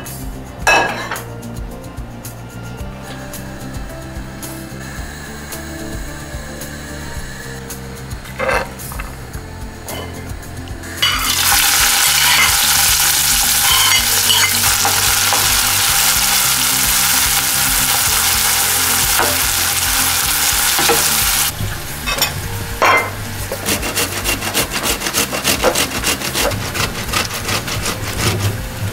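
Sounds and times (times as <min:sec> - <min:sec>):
onion sizzling in a pan: 0:10.4 - 0:25.8
tomato rubbed on metal grater: 0:23.4 - 0:28.9.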